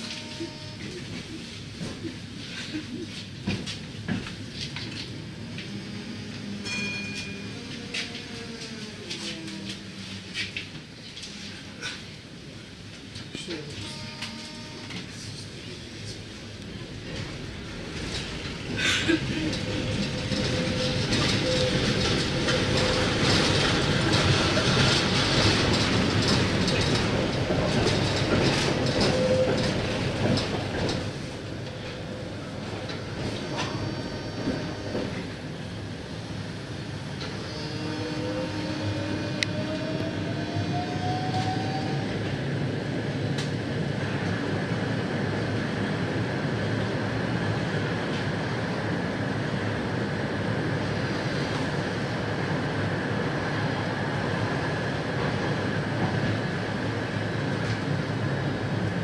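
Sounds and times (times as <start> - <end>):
tram running rumble: 0.0 - 59.0
rail clicks: 16.5 - 35.5, 43.2 - 44.3.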